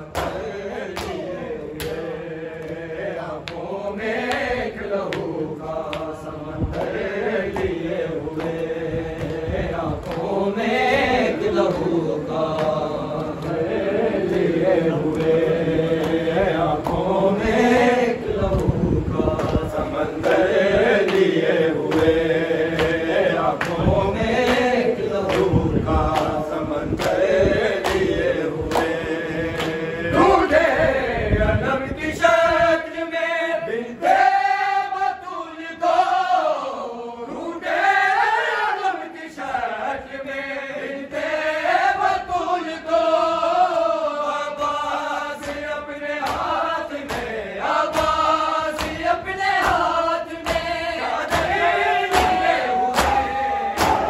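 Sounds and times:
men chanting a lament: 0.0s - 54.0s
hands beating chests: 46.2s - 54.0s.

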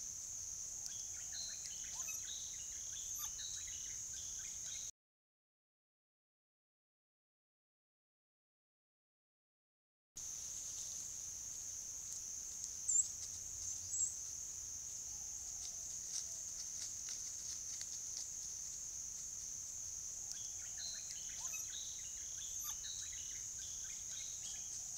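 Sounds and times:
insect drone: 0.0s - 4.9s, 10.2s - 24.9s
faint ticks: 0.8s - 1.0s, 10.4s - 21.6s
bird chirps: 0.8s - 4.9s, 12.9s - 13.1s, 13.7s - 14.2s, 20.2s - 24.9s.

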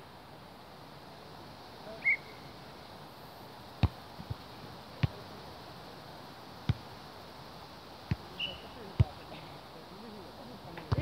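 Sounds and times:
volleyball slaps: 3.8s - 4.4s, 5.0s - 5.2s, 6.6s - 6.9s, 8.0s - 8.3s, 10.8s - 11.0s.

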